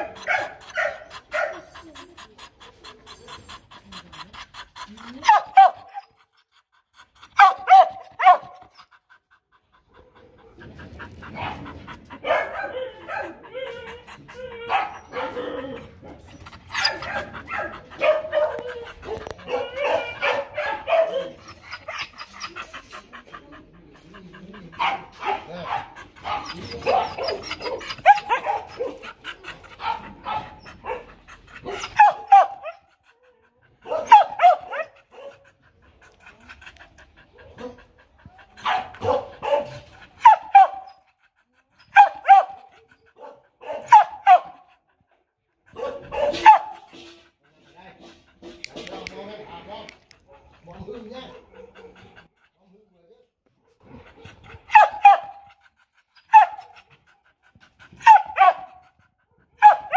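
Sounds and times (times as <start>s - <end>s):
dog barking: 0.0s - 1.6s, 7.4s - 8.6s, 12.2s - 13.4s, 16.8s - 21.4s, 32.0s - 32.8s, 33.8s - 35.4s, 38.6s - 40.8s, 42.0s - 42.6s, 43.2s - 44.6s, 45.7s - 46.8s, 54.7s - 55.4s, 56.3s - 56.6s, 58.0s - 58.8s, 59.6s - 59.9s.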